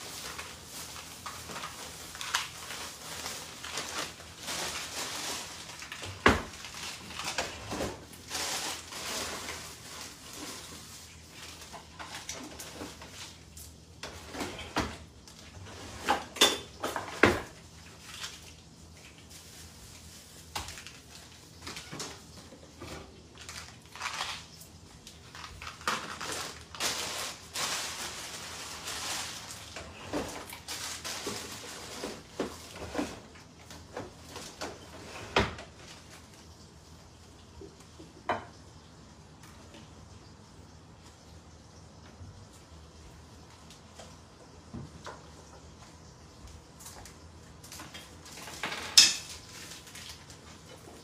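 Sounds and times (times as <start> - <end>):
rustling: 0.0 - 13.4, 23.2 - 35.1
kitchen items knocking and clinking: 0.1 - 10.7, 16.0 - 17.6, 47.8 - 49.8.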